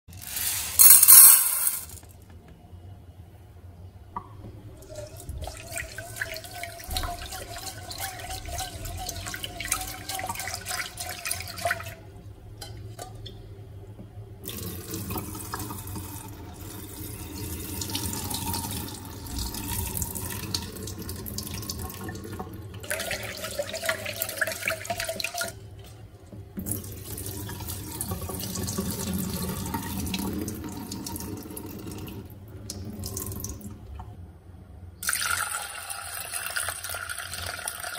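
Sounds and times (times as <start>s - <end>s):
grains clicking against metal: 0.1s - 2.0s
tap water running into pot: 4.8s - 12.0s, 14.0s - 25.6s, 26.3s - 34.0s, 35.0s - 37.9s
water poured into sink: 4.8s - 12.0s, 14.4s - 25.6s, 26.6s - 33.9s.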